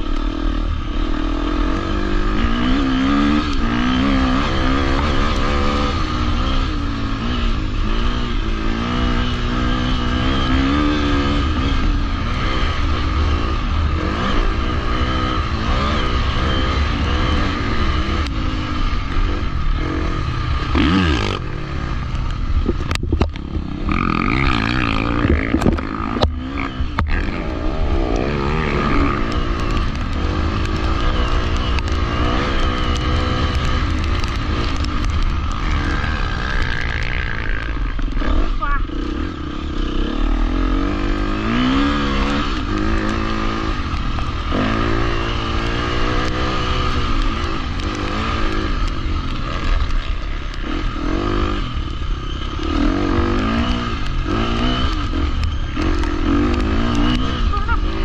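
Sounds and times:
motorcycle engine revving: 0.0s - 58.0s
wind noise on microphone: 22.6s - 24.0s.

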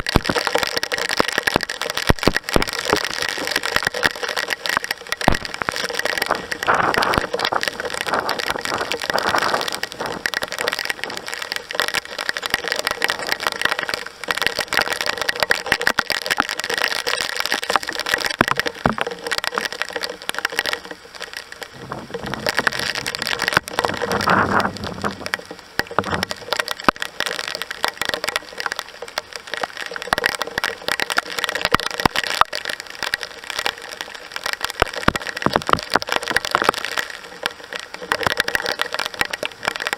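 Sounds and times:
heavy rain on surfaces: 0.0s - 39.9s
low rumble: 21.8s - 26.4s.

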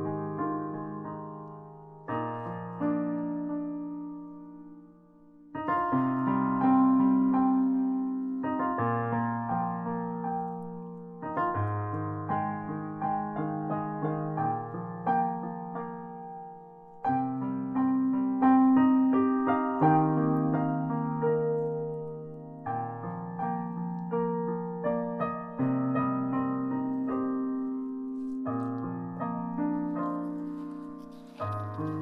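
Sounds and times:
solo piano chords and melody: 0.0s - 32.0s.

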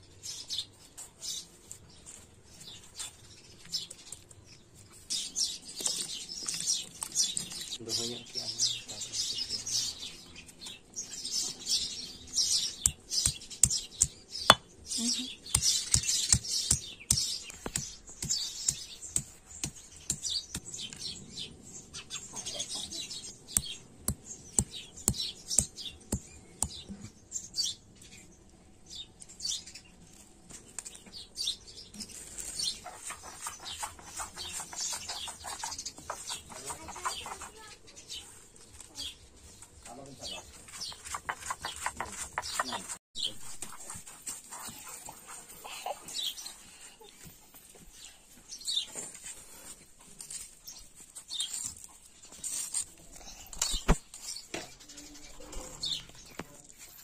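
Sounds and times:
birds chirping: 0.0s - 57.0s
stone grinding scrapes: 40.6s - 43.0s.

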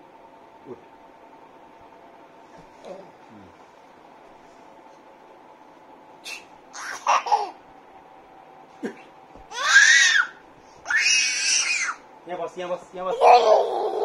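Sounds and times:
baby laughing and babbling: 6.7s - 7.6s, 13.1s - 14.0s
baby squealing laughs: 6.7s - 7.6s.

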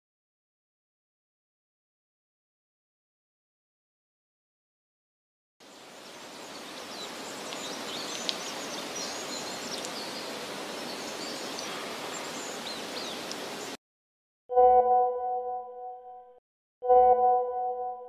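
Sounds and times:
open air hiss: 5.6s - 13.8s.

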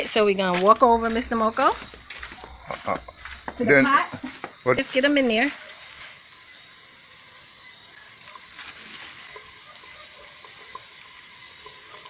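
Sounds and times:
chicken deep-frying in oil: 4.9s - 12.0s.

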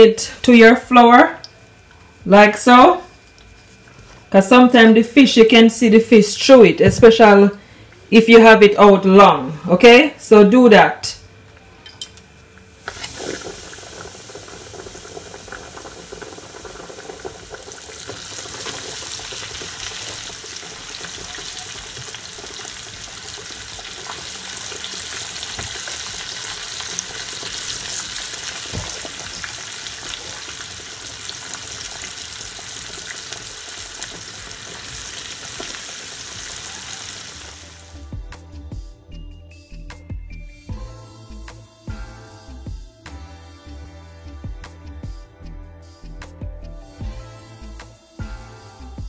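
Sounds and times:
fish sizzling in hot oil: 12.7s - 38.0s.

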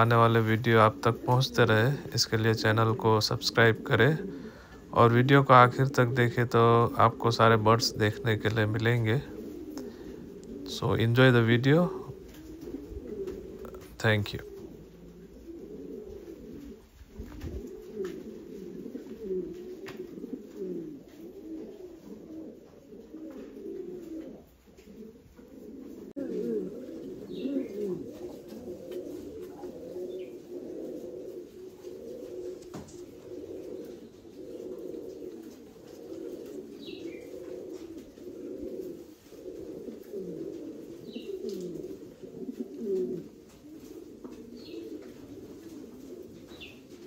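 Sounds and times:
pigeons cooing: 0.0s - 47.0s.

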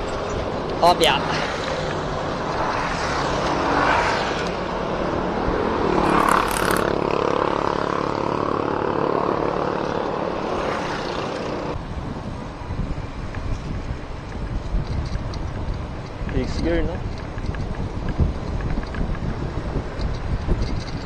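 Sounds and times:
road noise: 0.0s - 21.0s
vehicle engine passing: 0.4s - 11.8s.

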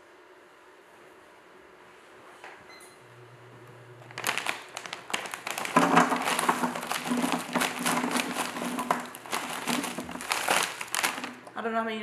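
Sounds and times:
plastic bag crinkling: 4.0s - 11.6s
nuggets clattering onto baking pan: 4.2s - 11.5s.

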